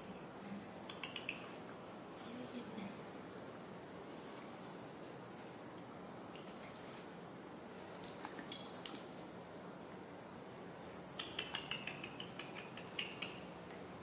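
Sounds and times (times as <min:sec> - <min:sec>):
claws clicking on tiled floor: 0:08.0 - 0:09.3, 0:11.1 - 0:13.5.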